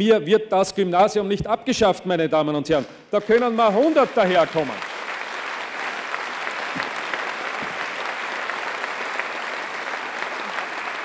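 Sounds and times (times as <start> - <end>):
audience applauding: 3.2 - 11.0.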